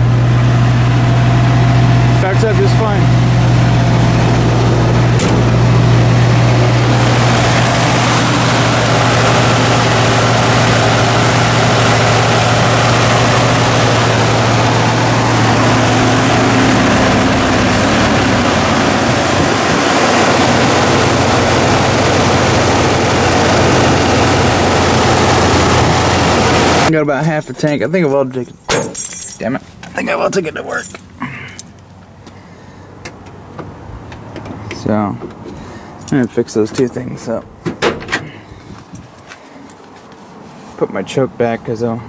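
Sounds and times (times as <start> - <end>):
carbureted engine idling: 0.0 - 28.1.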